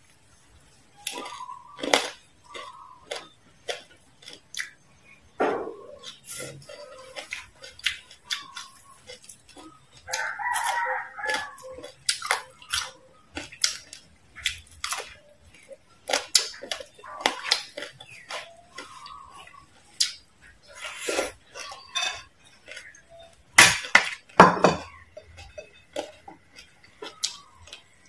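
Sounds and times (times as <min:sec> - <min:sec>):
crunching and chewing: 0:00.0 - 0:28.0
drawn-out animal call: 0:05.9 - 0:13.4, 0:16.8 - 0:19.9.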